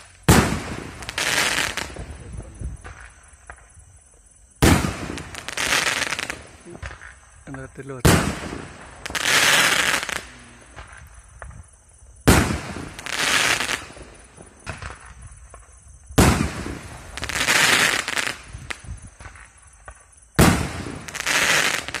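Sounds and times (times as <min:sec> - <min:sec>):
firework launch bang: 0:04.6 - 0:05.4, 0:16.1 - 0:21.2.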